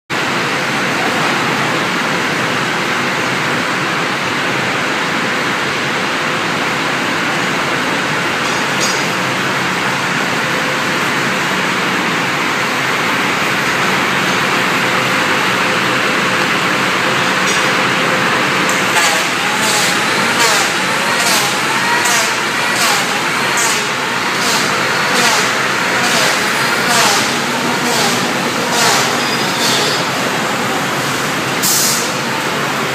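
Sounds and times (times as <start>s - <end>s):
machine rushing noise: 10.4s - 32.2s.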